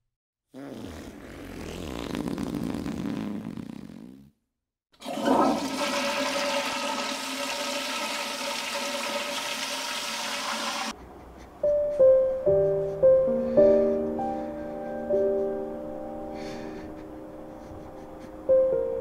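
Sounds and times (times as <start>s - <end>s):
toilet flushing: 5.0s - 10.9s
slow piano tune: 10.9s - 19.0s.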